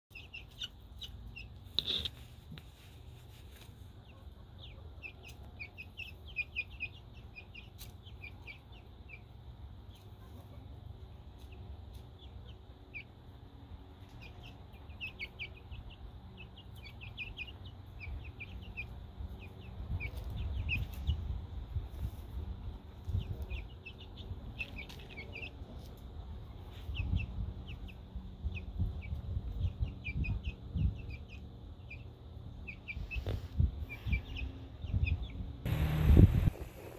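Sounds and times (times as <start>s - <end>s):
chicks peeping: 0.1s - 36.9s
low rumble: 35.7s - 36.9s.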